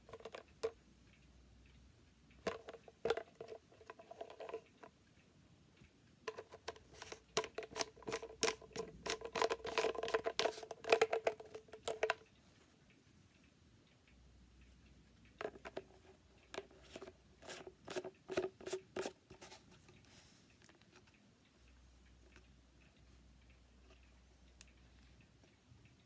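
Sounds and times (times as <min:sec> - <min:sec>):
plastic parts clicking and knocking: 0:00.0 - 0:00.8, 0:02.4 - 0:05.0, 0:06.2 - 0:12.3, 0:15.4 - 0:19.8.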